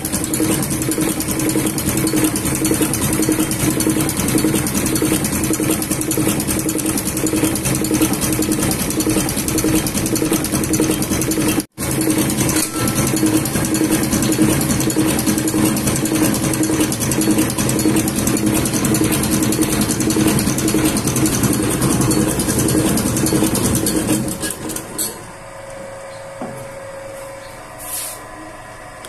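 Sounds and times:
fuel pump test bench clatter: 0:00.0 - 0:25.2.

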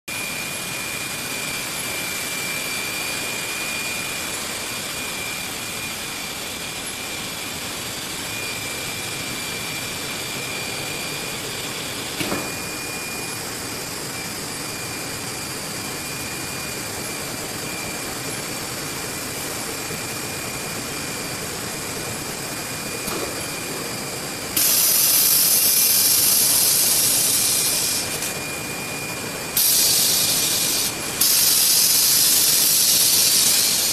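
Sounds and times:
machine running with high whine: 0:00.1 - 0:33.9
loud hiss: 0:24.5 - 0:28.2, 0:29.6 - 0:33.9.

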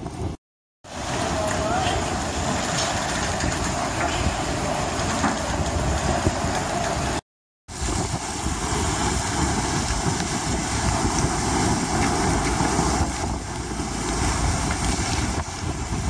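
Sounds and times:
waves breaking against quay: 0:00.0 - 0:16.0
wind blasting microphone: 0:00.0 - 0:16.0.

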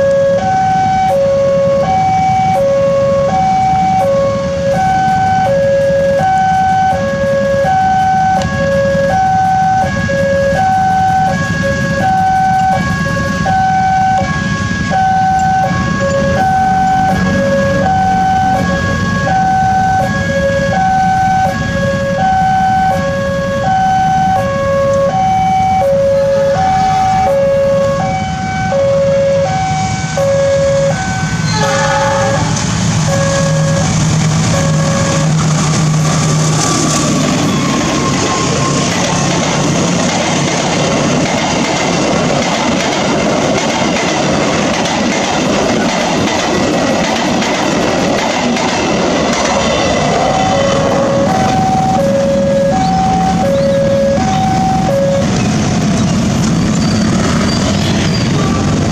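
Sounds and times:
level crossing alarm two tones: 0:00.0 - 0:38.9, 0:49.4 - 0:55.7
diesel locomotive hum: 0:00.0 - 0:58.9.

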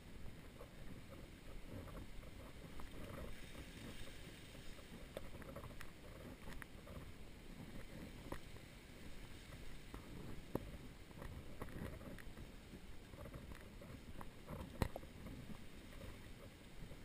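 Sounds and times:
faint clicks: 0:04.8 - 0:08.5.

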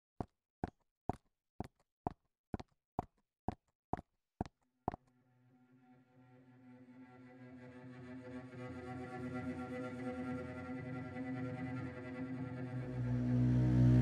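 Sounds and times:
hard-soled footsteps on hard floor: 0:00.2 - 0:05.0
ambient music drone: 0:05.9 - 0:14.0.

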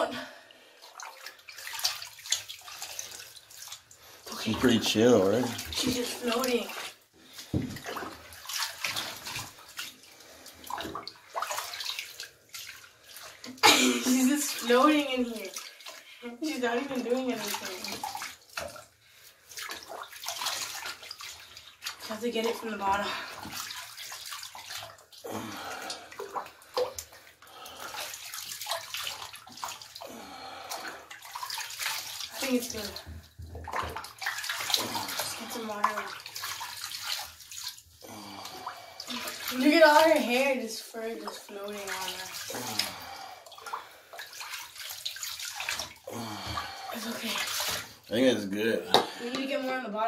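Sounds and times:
bath water splashing: 0:00.0 - 0:50.0.

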